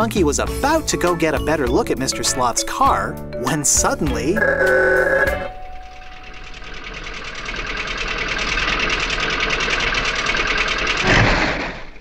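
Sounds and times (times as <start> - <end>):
cartoon car engine putt-putting: 9.3 - 12.0.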